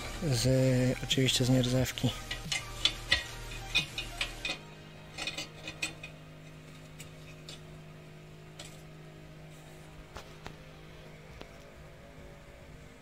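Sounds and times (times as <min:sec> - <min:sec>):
metal stand clinking and tapping: 0:02.2 - 0:07.7.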